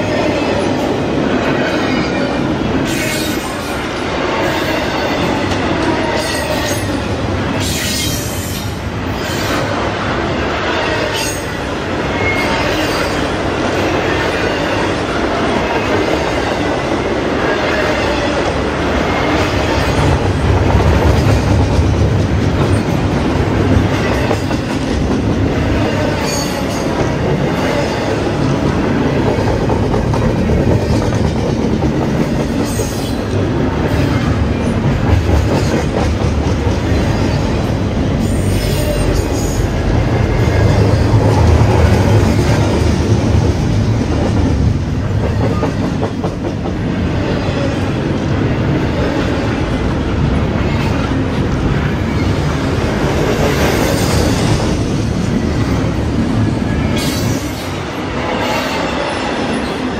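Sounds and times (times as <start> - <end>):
train wheels rumbling over rail joints: 11.8 - 59.9.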